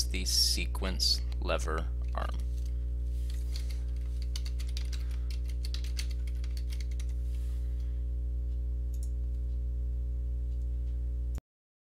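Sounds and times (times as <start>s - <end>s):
low electrical hum: 0.0s - 11.4s
typing on computer keyboard: 3.5s - 7.2s.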